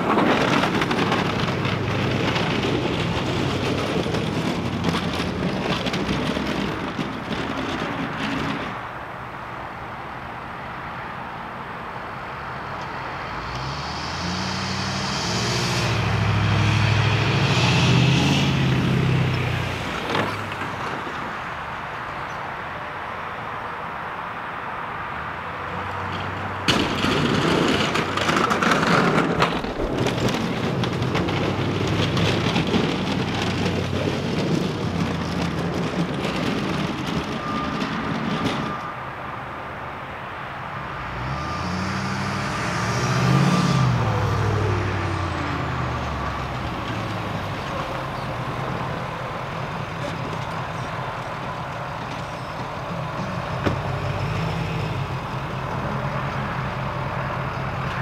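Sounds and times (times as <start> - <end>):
truck noise: 0.0 - 58.0
truck engine running: 11.8 - 22.1, 26.5 - 58.0
vehicle driving past: 12.1 - 20.9, 40.8 - 58.0.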